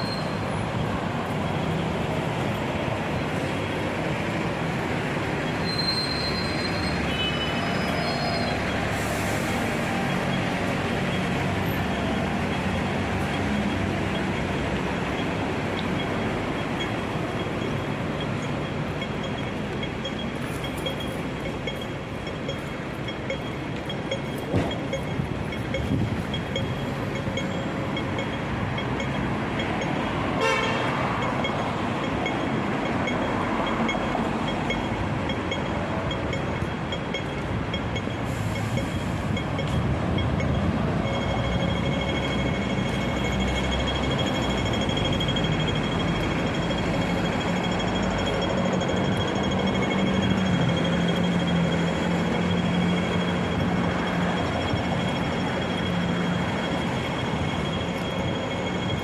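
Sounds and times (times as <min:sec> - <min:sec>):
bus engine drone: 0:00.0 - 0:59.0
crossing signal beeping: 0:00.0 - 0:59.0
street traffic noise: 0:00.0 - 0:59.0
car horn toot: 0:30.4 - 0:31.0.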